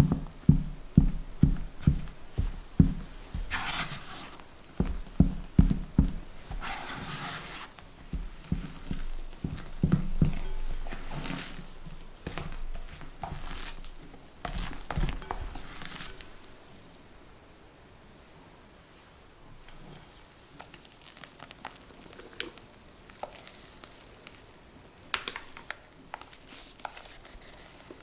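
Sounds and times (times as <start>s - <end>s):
spatula scraping through batter: 1.6s - 5.0s, 5.7s - 16.5s.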